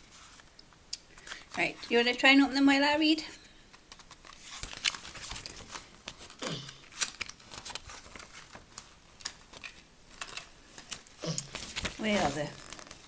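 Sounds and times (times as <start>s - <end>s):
snack packaging crinkling: 4.0s - 13.0s.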